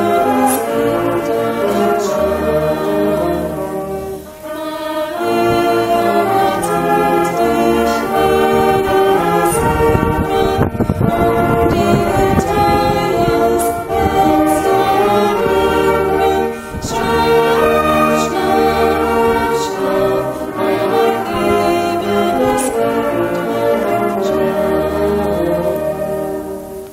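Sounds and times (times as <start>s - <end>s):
wind band playing slow tune: 0.0s - 26.9s.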